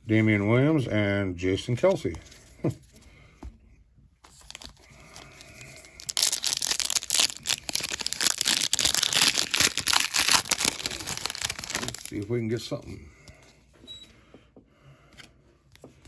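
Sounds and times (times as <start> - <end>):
wrapper tearing and crinkling: 4.3 - 12.3.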